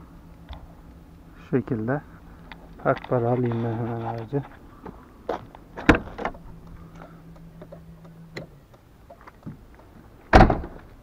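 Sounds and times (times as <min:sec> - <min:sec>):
faint low hum: 0:00.0 - 0:11.0
car door slamming shut: 0:05.8 - 0:06.4, 0:10.3 - 0:10.9
car door latch click: 0:10.3 - 0:10.8.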